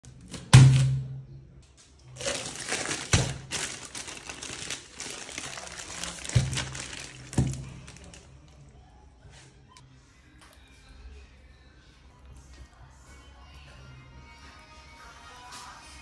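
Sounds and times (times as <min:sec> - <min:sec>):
plastic bag crinkling: 0:02.0 - 0:08.7.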